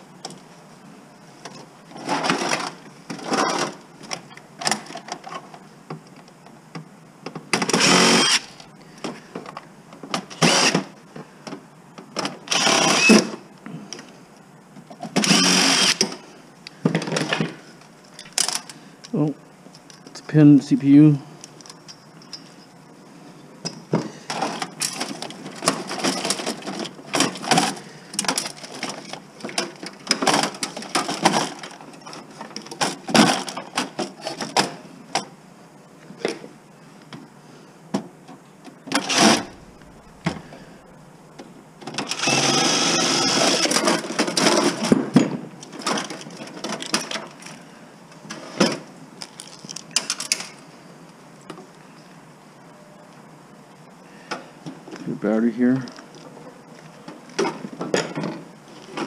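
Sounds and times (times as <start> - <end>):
cordless driver running: 7.7 - 8.6, 15.2 - 16.0, 39.0 - 39.6, 42.0 - 43.8
metal parts and screws clattering: 23.7 - 34.8, 43.2 - 47.6.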